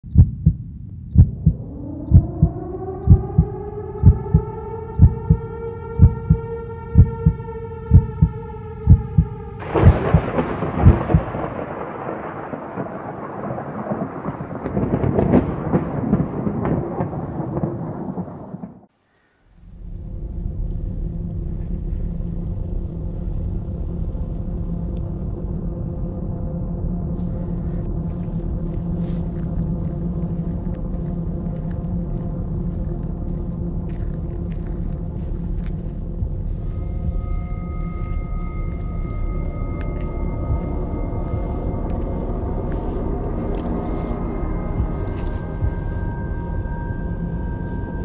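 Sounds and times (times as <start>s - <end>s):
heartbeat-like thumps: 0.0s - 11.6s, 39.6s - 46.8s
low droning hum: 0.1s - 12.5s, 19.6s - 48.0s
rising drone: 0.1s - 18.7s, 19.6s - 48.0s
thunder-like rumbling crash: 9.0s - 18.9s.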